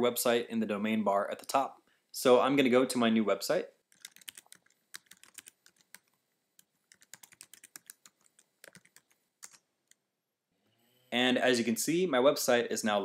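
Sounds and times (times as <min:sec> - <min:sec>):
faint keyboard typing: 0:03.9 - 0:10.0.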